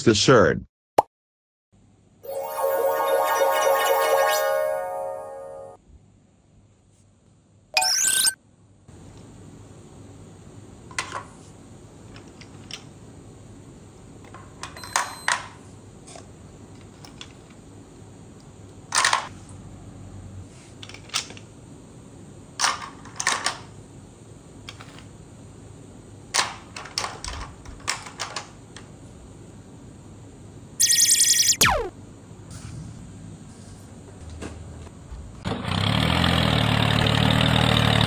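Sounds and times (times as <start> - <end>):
bright shimmering sound effect: 2.2 - 5.8, 7.8 - 8.4.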